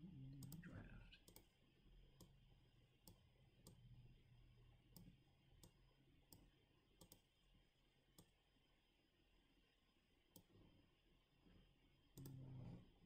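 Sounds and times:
computer mouse clicks: 0.4 - 1.5, 4.9 - 7.3, 10.3 - 10.5, 12.2 - 12.7.

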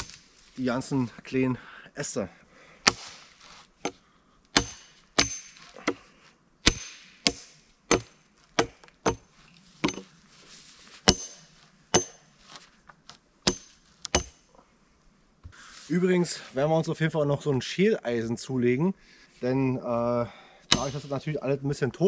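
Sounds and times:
axe chopping wood: 2.8 - 3.2, 4.6 - 6.0, 6.6 - 9.2, 11.0 - 12.2, 13.4 - 14.4, 20.7 - 21.1.

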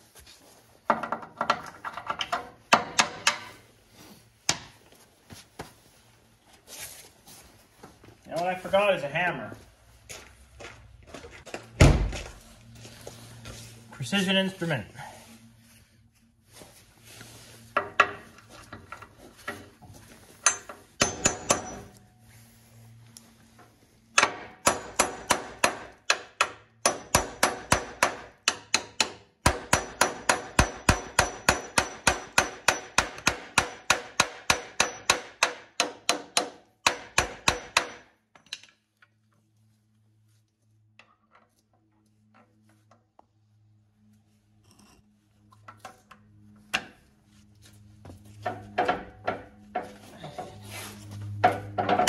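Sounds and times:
hammer ringing on metal: 21.0 - 21.9, 26.8 - 38.0.

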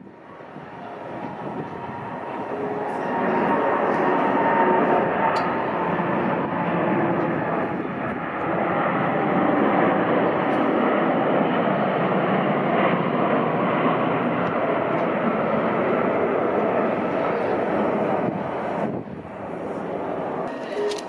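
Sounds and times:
faint engine whine: 0.0 - 12.1
loud jet noise: 0.0 - 21.0.

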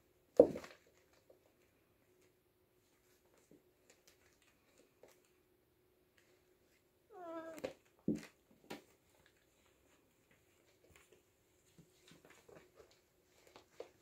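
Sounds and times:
kittens tussling on a carpet mat: 0.2 - 14.0
kitten meowing: 7.1 - 7.7.

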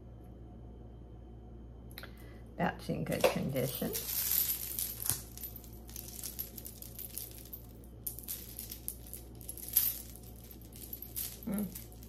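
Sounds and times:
metal jewelry clinking: 3.1 - 12.0.

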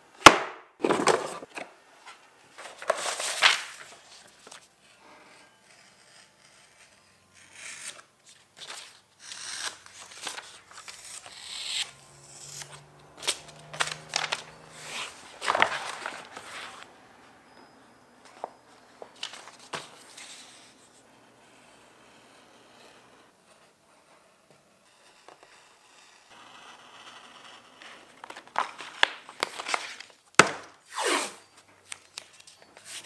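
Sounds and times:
paper rustling and crinkling: 2.6 - 4.7, 9.9 - 11.8, 12.6 - 16.9, 18.3 - 20.6, 28.2 - 30.5
knife cutting paper: 8.6 - 16.9.

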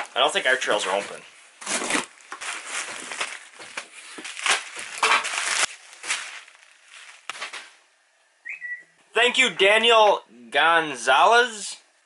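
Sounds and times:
bubble wrap crinkling: 0.0 - 7.8
cardboard and tape tearing: 0.9 - 7.7.

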